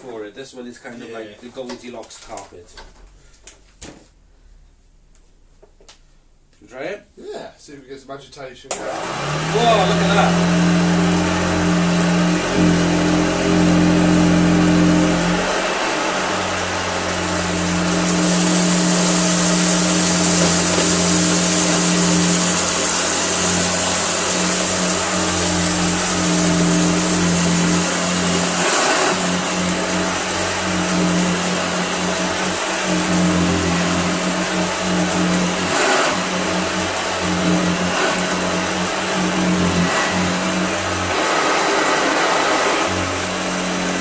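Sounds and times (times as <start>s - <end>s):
vacuum cleaner motor humming: 8.7s - 44.0s
high rushing hiss: 9.4s - 44.0s.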